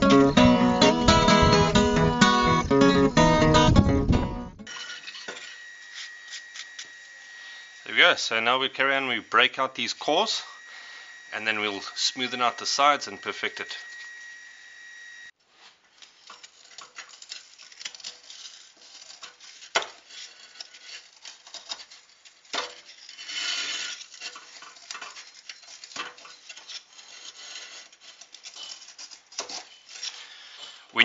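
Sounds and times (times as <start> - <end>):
crumbly brick scraping: 15.5 - 31.0
brick cores snapping: 16.0 - 30.3.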